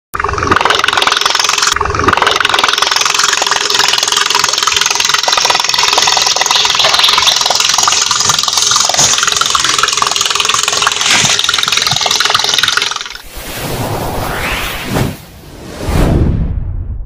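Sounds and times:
toy boat motor buzzing: 0:00.2 - 0:13.2.

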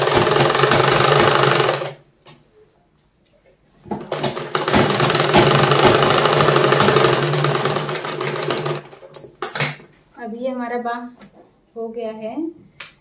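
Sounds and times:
sewing machine clattering: 0:00.0 - 0:02.0, 0:03.9 - 0:09.8.

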